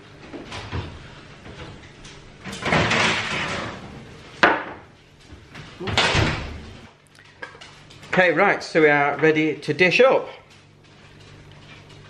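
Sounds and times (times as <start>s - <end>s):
baking tray scraping off rack: 2.6s - 4.2s.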